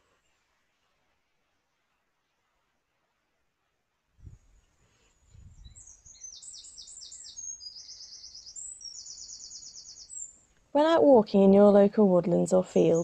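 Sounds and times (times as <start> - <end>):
songbirds singing: 5.3 - 10.5, 12.3 - 13.0.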